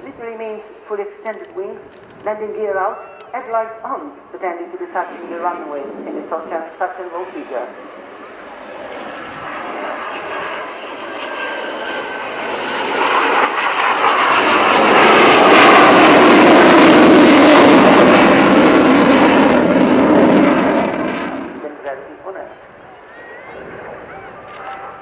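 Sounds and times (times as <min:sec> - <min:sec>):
jet passing in afterburner: 0:04.9 - 0:21.8, 0:22.6 - 0:25.0.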